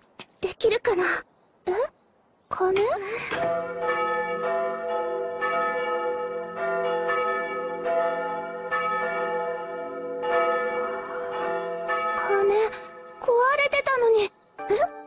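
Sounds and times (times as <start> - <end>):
tower bells ringing: 3.3 - 13.9.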